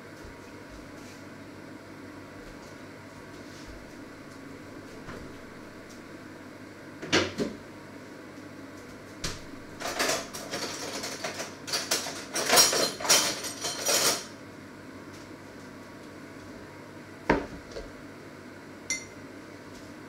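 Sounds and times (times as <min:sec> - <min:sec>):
kitchen objects rattling: 0:09.8 - 0:14.3.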